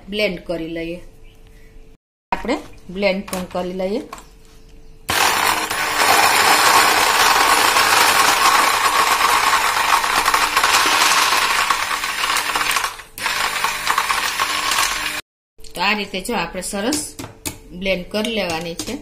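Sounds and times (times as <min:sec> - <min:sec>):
electric blender running: 0:05.1 - 0:15.2
ice rattling in blender: 0:05.1 - 0:15.2.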